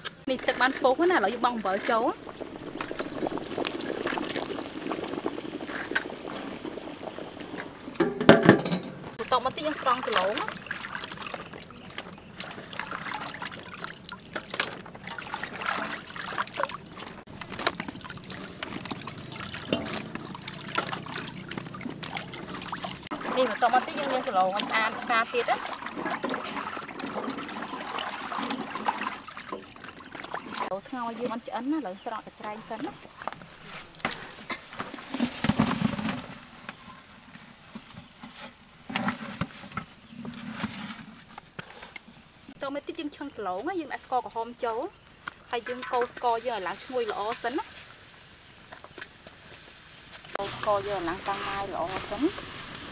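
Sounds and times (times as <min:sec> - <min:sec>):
small water splashes: 0:00.4 - 0:31.4
water dripping and trickling: 0:00.6 - 0:35.4, 0:45.0 - 0:52.9.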